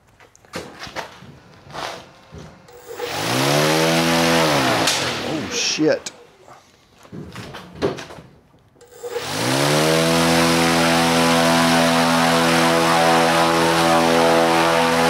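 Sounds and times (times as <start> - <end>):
electric motor propeller hum: 2.7 - 6.3, 8.8 - 15.0.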